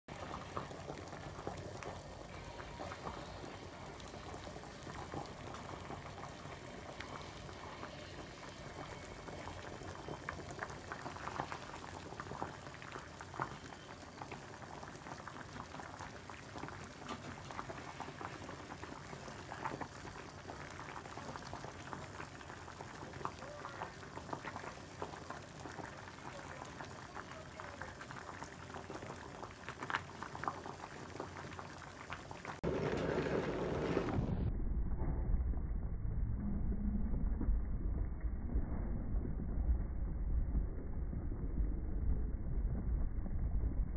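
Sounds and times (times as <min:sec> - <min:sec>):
water boiling in saucepan: 0:00.1 - 0:34.3.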